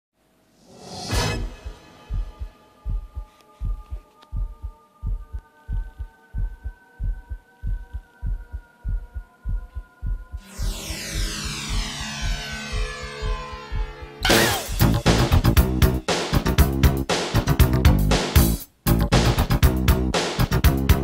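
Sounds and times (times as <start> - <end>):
held synth tones: 1.1 - 15.0
heartbeat-like bass thumps: 1.4 - 16.0.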